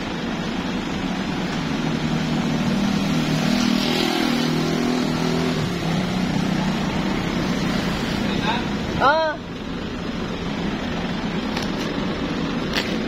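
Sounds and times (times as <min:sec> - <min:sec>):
garbage truck engine running: 0:00.0 - 0:03.0, 0:05.6 - 0:13.0.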